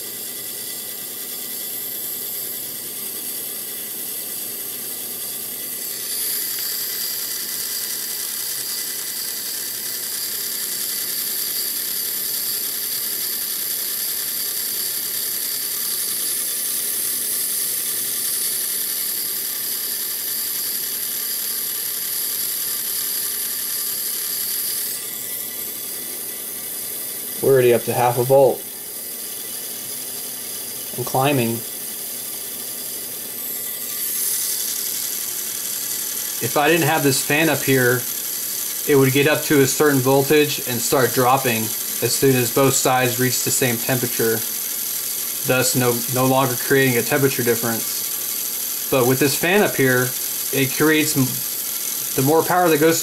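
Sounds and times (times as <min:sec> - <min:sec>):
small motor and gears whirring: 0:00.0 - 0:53.0.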